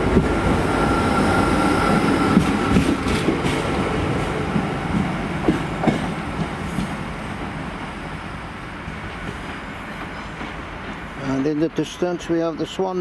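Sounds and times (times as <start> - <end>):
train wheels clacking over rail joints: 2.2 - 3.8, 4.5 - 7.0, 8.9 - 11.6.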